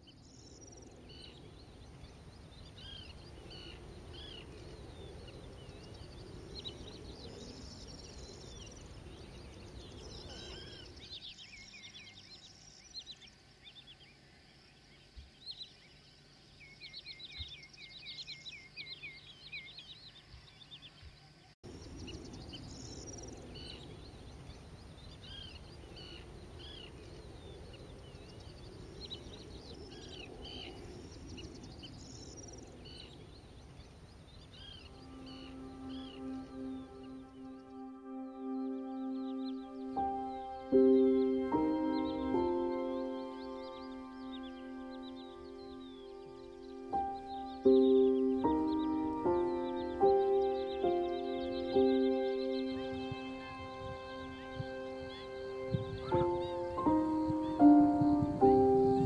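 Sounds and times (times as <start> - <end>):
wetland birds calling: 0.0 - 14.2, 21.9 - 59.0.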